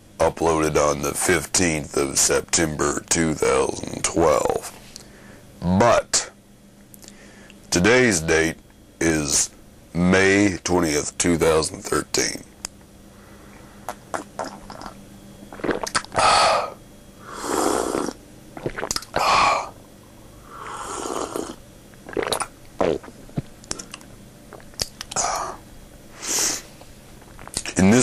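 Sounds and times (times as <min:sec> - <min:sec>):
person slurping from a mug: 0:14.4 - 0:16.1, 0:17.3 - 0:19.4, 0:20.6 - 0:23.1.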